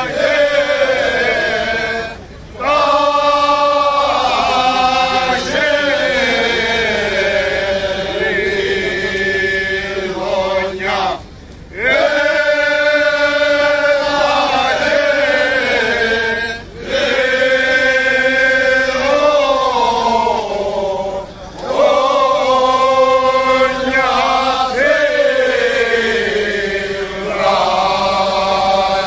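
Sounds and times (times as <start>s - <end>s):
men singing unaccompanied: 0.0s - 29.0s.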